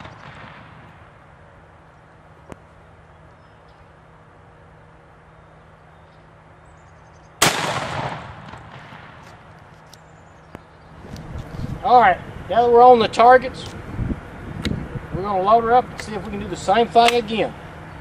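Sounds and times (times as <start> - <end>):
shotgun blast with echo: 0.0 - 1.1, 7.4 - 9.4.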